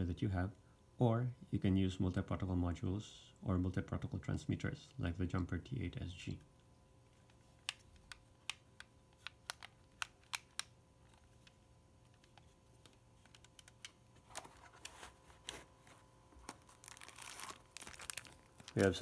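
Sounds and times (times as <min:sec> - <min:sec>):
handling rustle: 0:11.0 - 0:19.0.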